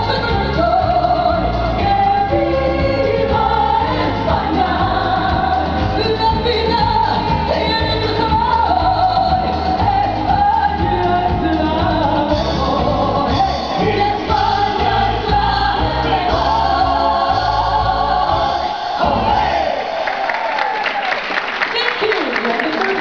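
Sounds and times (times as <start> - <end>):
woman singing into a microphone: 0.0 - 18.2
amplified backing music: 0.0 - 20.0.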